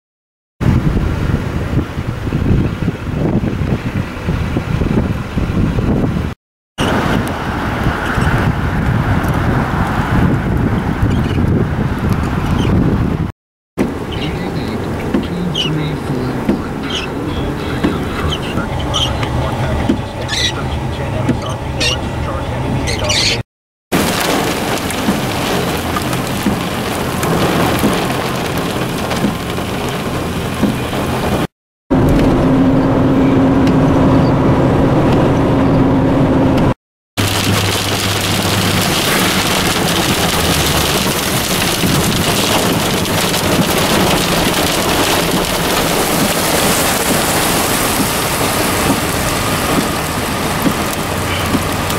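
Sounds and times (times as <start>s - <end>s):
rain and hail on vehicle: 24.0s - 31.5s, 37.2s - 51.9s.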